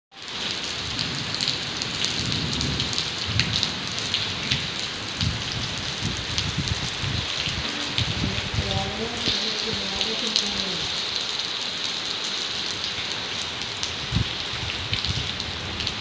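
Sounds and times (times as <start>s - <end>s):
heavy rain on paving and foliage: 0.1s - 16.0s.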